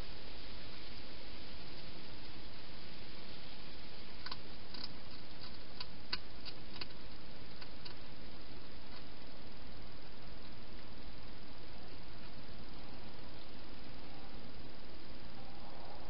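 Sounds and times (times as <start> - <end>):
steady hiss: 0.0 - 16.0
hedgehog chewing clicks: 4.2 - 8.0.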